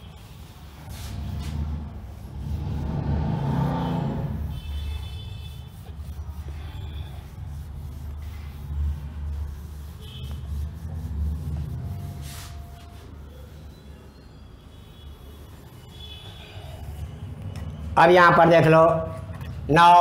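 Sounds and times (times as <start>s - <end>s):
duster rubbing on whiteboard: 0.0s - 14.2s.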